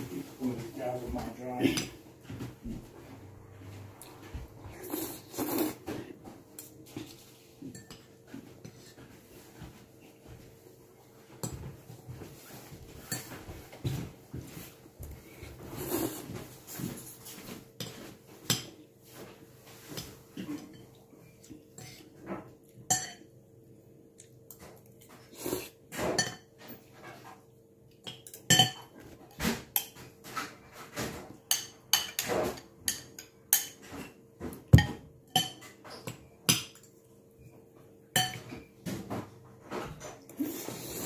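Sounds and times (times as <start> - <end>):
cutlery clinking on ceramic bowl: 7.6 - 8.2, 22.9 - 23.3, 26.0 - 26.6, 28.0 - 29.0, 31.5 - 36.9, 38.1 - 38.7.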